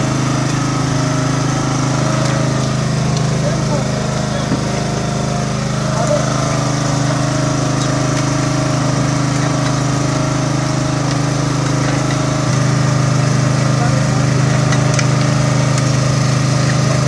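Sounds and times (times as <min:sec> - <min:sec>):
boat engine drone: 0:00.0 - 0:17.0.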